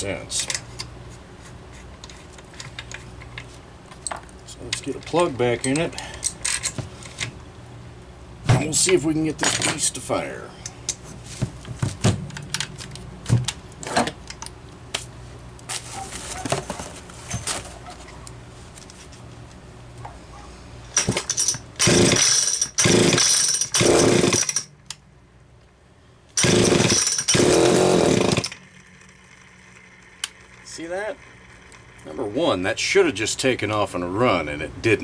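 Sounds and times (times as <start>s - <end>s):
light metal clicks and knocks: 4.0s - 6.8s.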